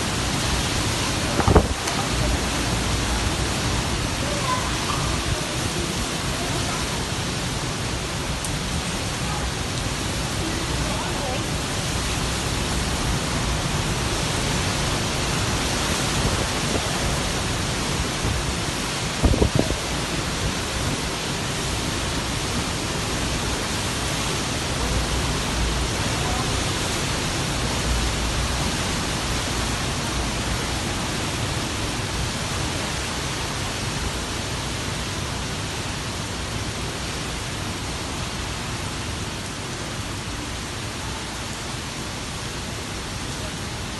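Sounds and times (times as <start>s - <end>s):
strong wind blowing: 0.0s - 33.0s
heavy rain pouring: 0.0s - 43.9s.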